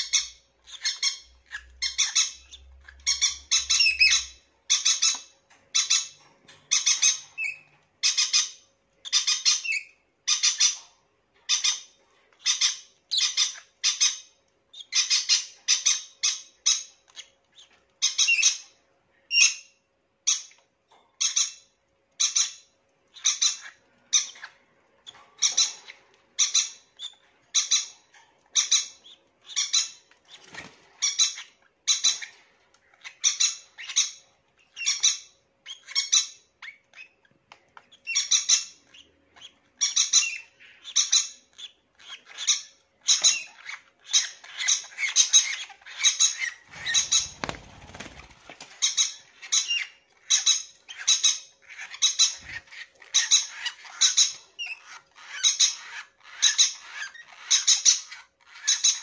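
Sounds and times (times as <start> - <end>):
lovebirds squawking: 0.0 - 19.6, 22.2 - 59.0.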